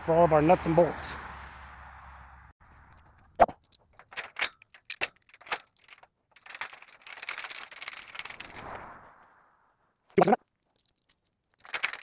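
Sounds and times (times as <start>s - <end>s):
metal hardware clinking: 2.6s - 8.6s, 10.0s - 12.0s
nuts and bolts jangling: 2.6s - 9.0s, 9.8s - 12.0s.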